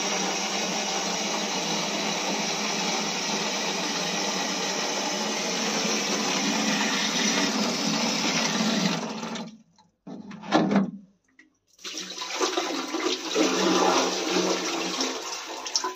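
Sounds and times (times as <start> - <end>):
tap water gushing into jar: 5.8 - 9.6, 11.8 - 15.9.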